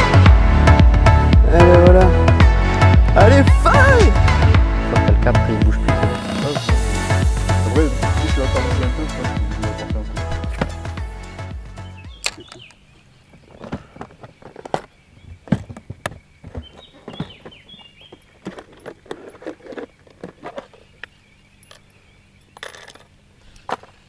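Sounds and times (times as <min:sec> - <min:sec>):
falling bird chirps: 0:11.8 - 0:18.6
light clicks and clinks: 0:21.0 - 0:23.2.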